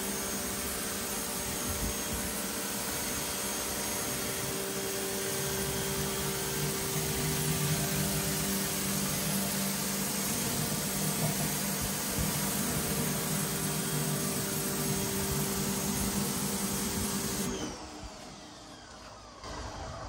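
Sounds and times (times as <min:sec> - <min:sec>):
hiss of spinning spray jets: 0:00.0 - 0:18.2
pressure washer pump hum: 0:00.0 - 0:19.6
faint falling whine: 0:17.5 - 0:20.0.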